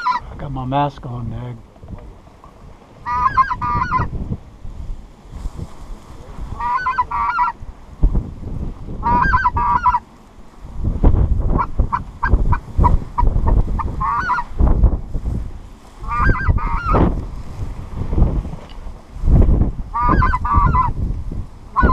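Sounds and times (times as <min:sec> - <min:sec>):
goose honking: 0:00.0 - 0:00.2, 0:03.0 - 0:04.1, 0:06.6 - 0:07.6, 0:09.0 - 0:10.0, 0:11.6 - 0:14.6, 0:16.0 - 0:17.1, 0:19.9 - 0:20.9
wind buffeting microphone: 0:00.0 - 0:21.9.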